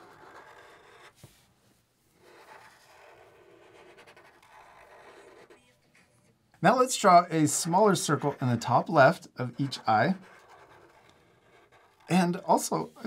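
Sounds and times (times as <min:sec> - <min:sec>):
marker scratching on paper: 0:00.0 - 0:01.4, 0:02.1 - 0:06.1, 0:06.9 - 0:13.0.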